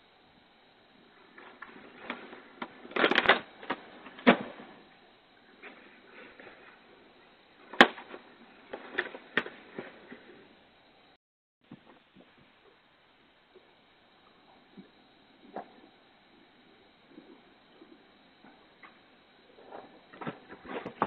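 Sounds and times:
plastic trash bags crinkling: 2.9 - 4.3.

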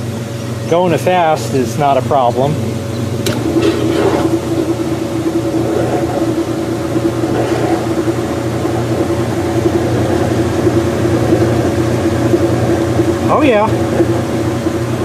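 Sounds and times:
washing machine spinning: 0.0 - 15.0.

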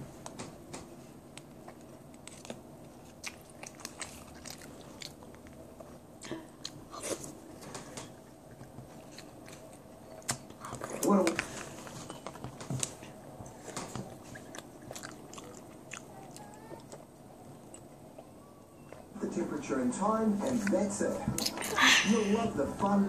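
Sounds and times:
person chewing crunchy cereal: 1.4 - 5.9, 13.5 - 18.3.

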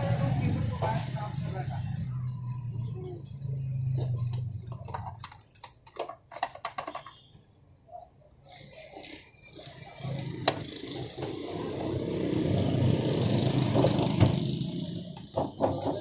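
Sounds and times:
vehicle passing: 10.0 - 15.4.

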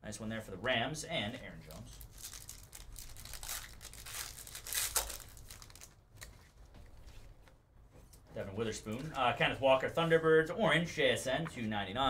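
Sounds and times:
foil wrapper tearing and crinkling: 1.9 - 6.0.

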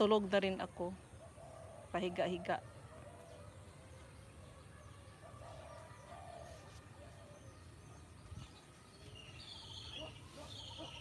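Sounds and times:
dove cooing: 1.2 - 3.6.

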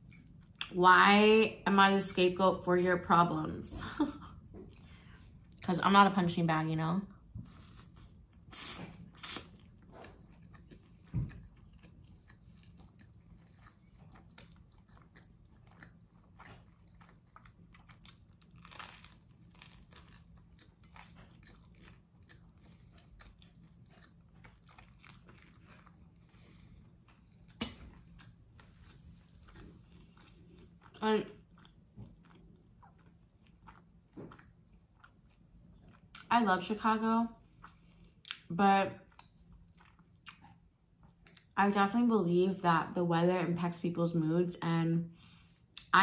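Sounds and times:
chewing and biting: 7.5 - 36.3, 37.5 - 41.5
crunching bites into toasted bread: 11.3 - 26.1.

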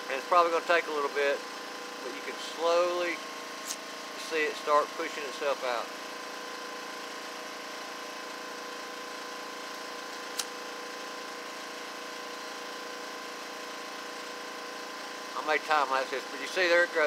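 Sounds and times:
sharp click: 3.6 - 3.8, 10.2 - 10.6.

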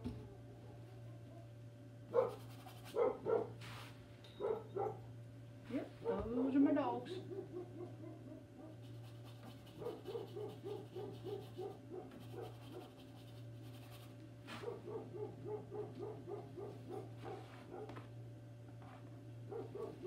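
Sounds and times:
dog barking: 0.6 - 1.5, 2.1 - 3.6, 4.4 - 5.1, 6.0 - 6.3, 7.1 - 8.8, 9.8 - 12.9, 14.5 - 18.0, 19.5 - 20.0.

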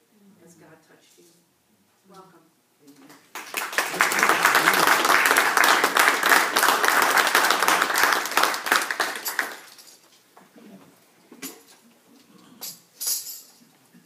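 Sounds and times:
audience applauding: 3.3 - 9.7.

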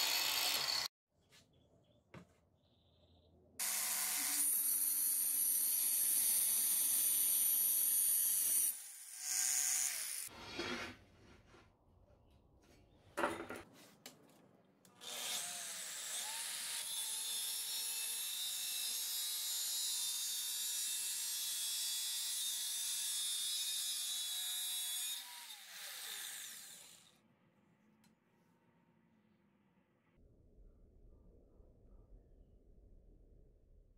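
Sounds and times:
angle grinder grinding steel: 0.0 - 0.9.

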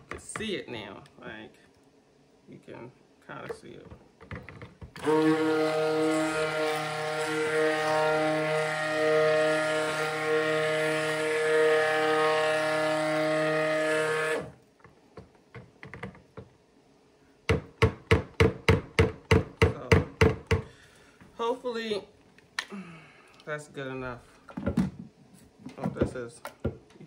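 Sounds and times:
immersion blender running: 5.0 - 14.6.

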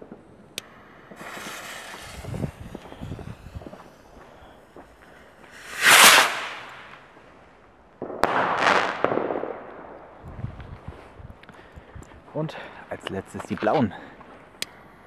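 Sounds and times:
firework hiss: 0.6 - 7.1
firework launching whoosh: 1.1 - 4.2, 5.5 - 7.1
firework bursting with sharp crack: 1.1 - 7.1, 8.0 - 9.9.

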